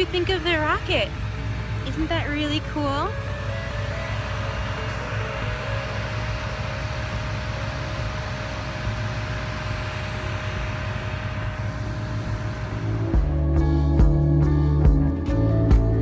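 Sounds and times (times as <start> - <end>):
faint steady hum: 0.0 - 14.9
outdoor background rumble: 0.0 - 16.0.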